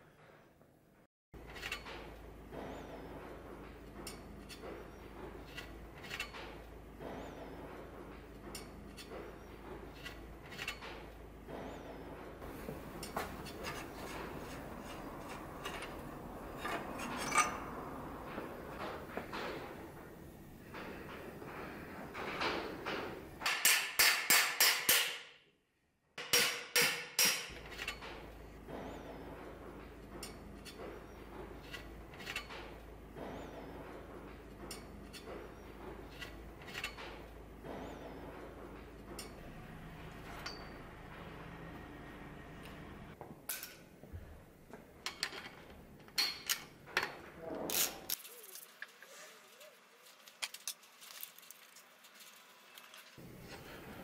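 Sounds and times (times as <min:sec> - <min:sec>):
hammer striking metal: 0:22.4 - 0:25.4, 0:26.2 - 0:27.6, 0:40.4 - 0:41.0.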